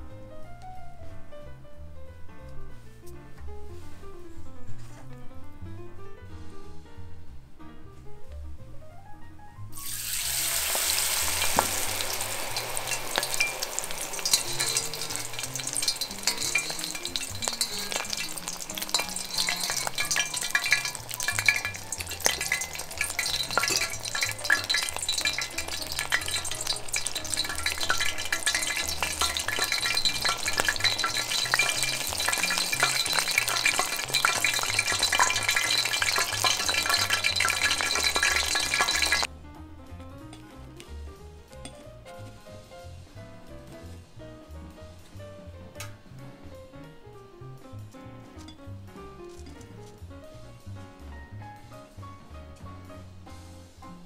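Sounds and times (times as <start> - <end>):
shrimp deep-frying in oil: 9.7 - 39.3, 47.7 - 54.0.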